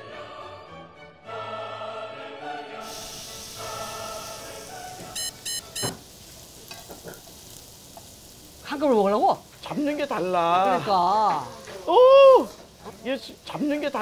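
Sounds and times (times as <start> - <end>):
background music: 0.0 - 5.8
beef sizzling on a grill: 2.8 - 14.0
quick electronic beeps: 5.2 - 5.9.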